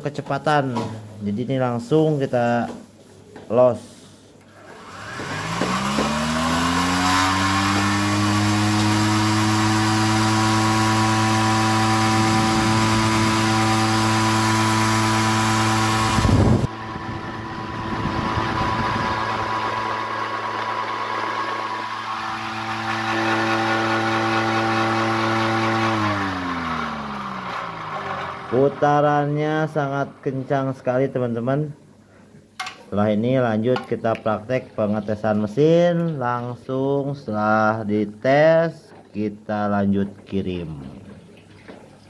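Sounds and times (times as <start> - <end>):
motor spinner whine: 4.6 - 29.3.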